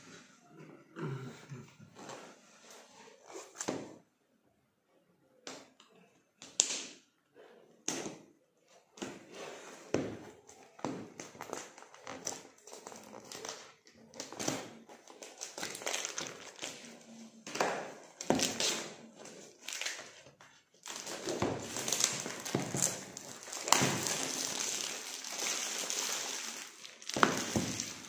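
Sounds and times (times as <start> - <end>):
plastic bag crinkling: 18.5 - 28.0.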